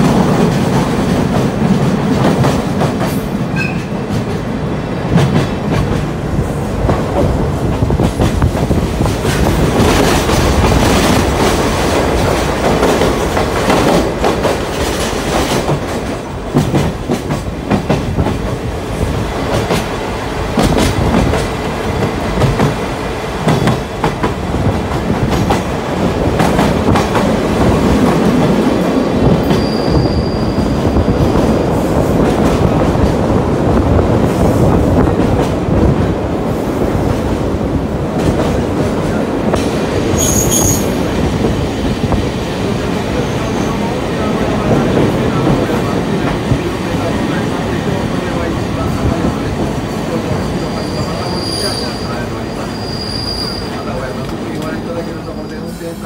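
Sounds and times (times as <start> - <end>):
trolley car rumbling on rails: 0.0 - 56.0
high wheel squeal: 29.5 - 30.8, 40.2 - 41.1, 50.6 - 53.9.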